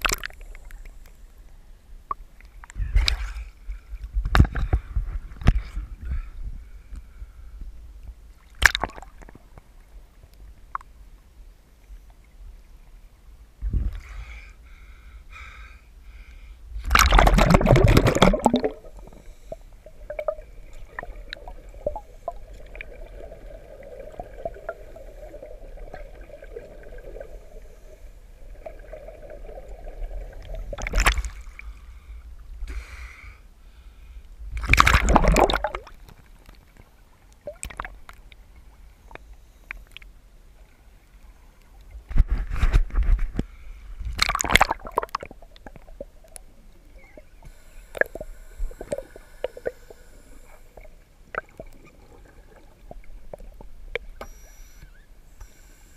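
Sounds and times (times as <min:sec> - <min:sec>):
faint steady hum: 0:00.0 - 0:55.9
bubble gurgles: 0:16.9 - 0:19.1, 0:34.7 - 0:35.9
exhaled bubbles rushing underwater: 0:16.9 - 0:19.2, 0:19.8 - 0:31.6, 0:34.6 - 0:36.0.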